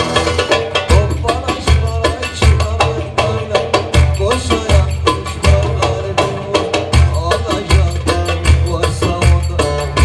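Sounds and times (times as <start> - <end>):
saz playing folk music: 0.0 - 10.0
steady percussion: 0.0 - 10.0.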